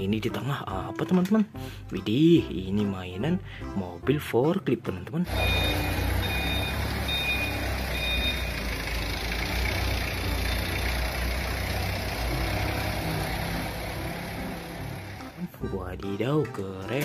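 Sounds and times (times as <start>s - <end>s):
reversing alarm beeps: 5.3s - 8.7s
forklift engine humming: 5.3s - 15.7s.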